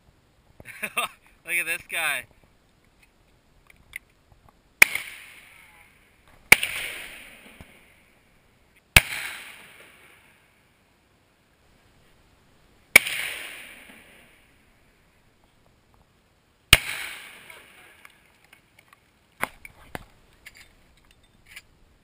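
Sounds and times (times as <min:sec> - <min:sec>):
shotgun shots with echo: 0:04.8 - 0:05.7, 0:06.5 - 0:07.9, 0:09.0 - 0:10.3, 0:13.0 - 0:14.4, 0:16.7 - 0:18.0.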